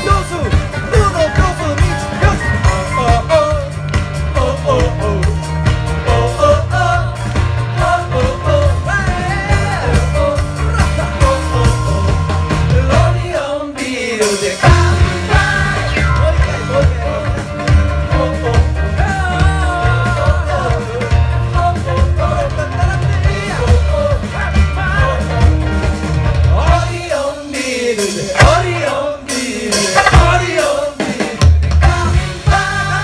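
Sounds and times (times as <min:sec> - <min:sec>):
live rock band playing: 0:00.0 - 0:33.0
group singing: 0:01.2 - 0:25.7, 0:26.3 - 0:33.0.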